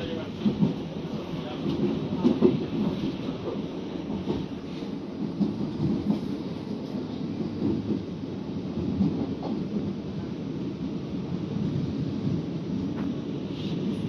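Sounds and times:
train wheels rumbling on rail: 0.0s - 14.0s.

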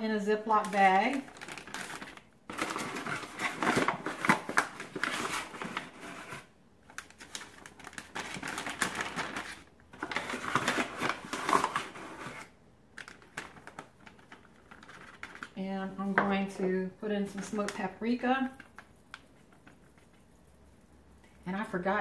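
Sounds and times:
plastic bag crinkling: 0.4s - 15.6s
flour being spooned: 17.3s - 21.8s.

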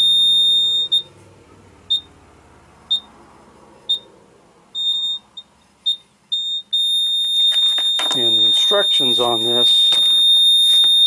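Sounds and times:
electronic beeping tone: 4.8s - 11.0s.

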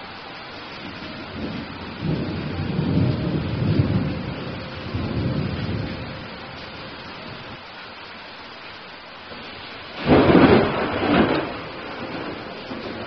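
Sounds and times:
steady rain hiss: 0.0s - 13.0s
rolling thunder: 0.8s - 7.6s, 9.3s - 13.0s.

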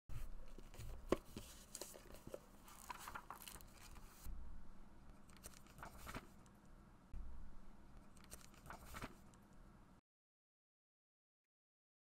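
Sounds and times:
paper and leather rustling: 0.1s - 4.3s, 5.4s - 6.4s, 8.2s - 9.3s
low hum: 3.7s - 10.0s.

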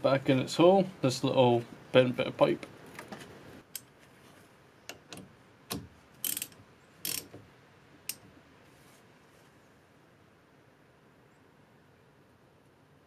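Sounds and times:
ratchet clicking: 6.2s - 7.4s.

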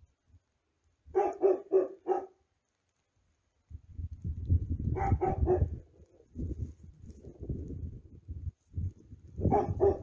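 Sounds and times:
dog barking: 1.1s - 2.4s, 4.9s - 5.8s, 9.4s - 10.0s.

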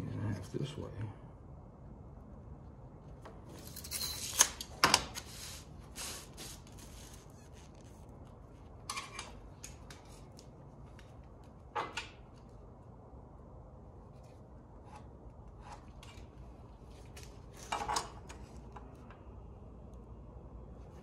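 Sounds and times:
board rustling: 3.4s - 8.5s.

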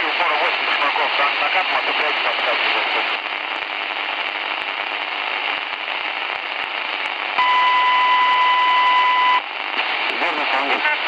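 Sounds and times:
radio static hiss: 0.0s - 11.0s
high beep tone: 7.4s - 9.4s.

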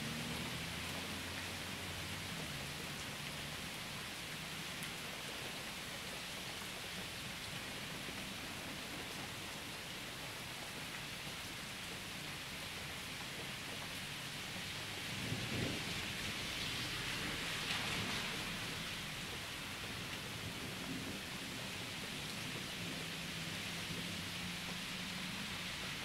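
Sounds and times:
rain falling: 0.0s - 26.0s.

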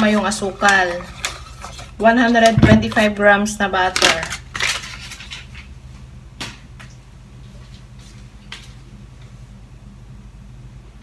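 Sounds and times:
steady low hum: 0.0s - 11.0s
foil wrapper crinkling: 3.9s - 5.7s.

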